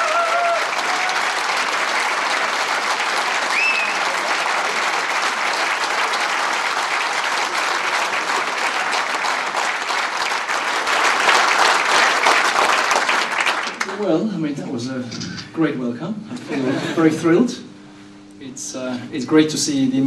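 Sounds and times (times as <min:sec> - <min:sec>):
crowd clapping: 0:00.0 - 0:14.3.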